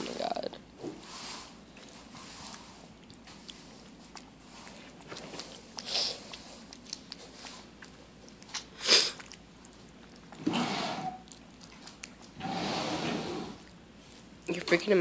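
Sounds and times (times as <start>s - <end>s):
cat chewing wetly: 1.8s - 12.6s
cat breathy noises: 10.4s - 11.2s, 12.4s - 13.6s.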